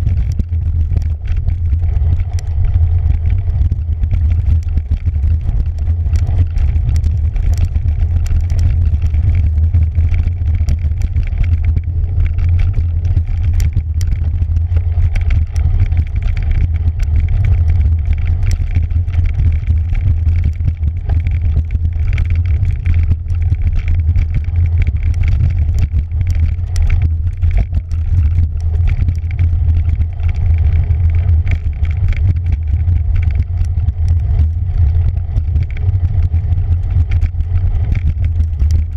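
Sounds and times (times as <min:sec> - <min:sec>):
bike clicking and rattling: 0:00.0 - 0:38.9
low rumble of wind and vibration: 0:00.0 - 0:38.9.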